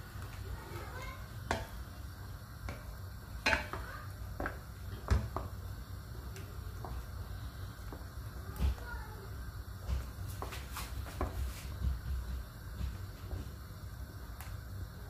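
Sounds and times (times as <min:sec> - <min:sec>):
wooden spoon stirring stew: 0:06.5 - 0:08.8.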